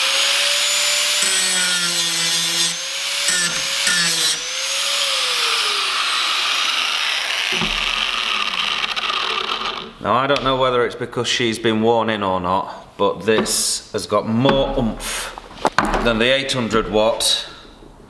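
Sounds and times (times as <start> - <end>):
angle grinder whining: 0.0 - 10.0.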